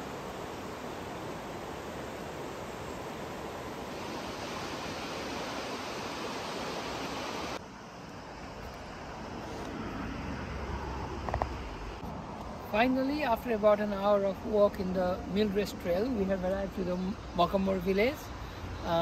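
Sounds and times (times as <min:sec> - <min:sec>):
dull hiss: 0:00.0 - 0:10.2
river water rushing: 0:00.0 - 0:16.9.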